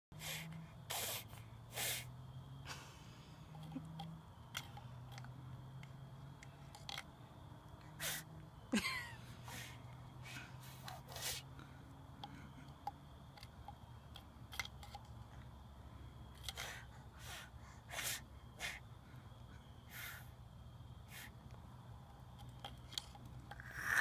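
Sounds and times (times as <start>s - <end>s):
low steady hum: 0.1s - 24.0s
child blowing breathy puffs: 0.2s - 3.4s, 7.9s - 8.3s, 9.4s - 11.6s, 16.4s - 18.9s, 19.9s - 20.4s, 21.0s - 21.4s.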